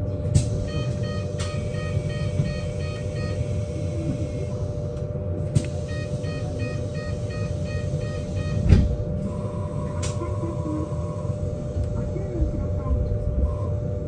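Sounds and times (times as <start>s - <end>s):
electric bus rumble and whine: 0.0s - 14.0s.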